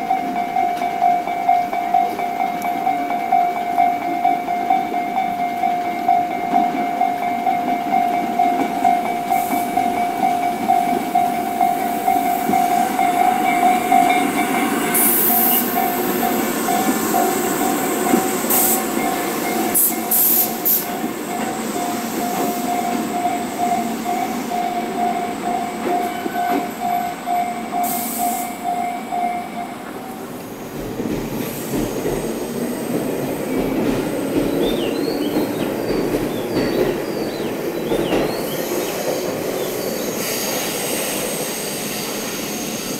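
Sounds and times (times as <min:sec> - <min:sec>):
level crossing bell ringing: 0:00.0 - 0:19.9
train wheels rumbling on rails: 0:00.0 - 0:42.9
high wheel squeals: 0:09.2 - 0:29.5, 0:32.5 - 0:42.9.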